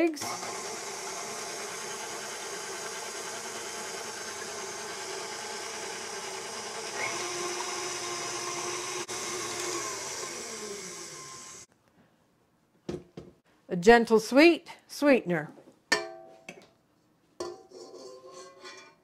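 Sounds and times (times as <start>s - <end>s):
stand mixer running: 0.2s - 11.7s.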